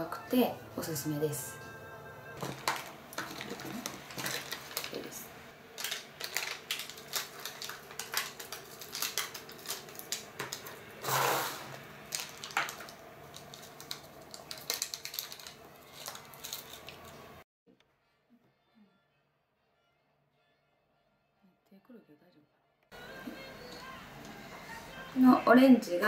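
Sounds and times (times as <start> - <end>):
foil sachet crinkling: 2.4 - 17.4
sachet tearing: 2.4 - 17.4.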